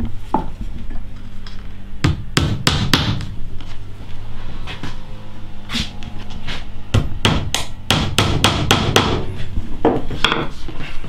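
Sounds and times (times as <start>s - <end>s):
hammer hitting nails into wood: 2.1s - 3.3s, 7.0s - 9.2s.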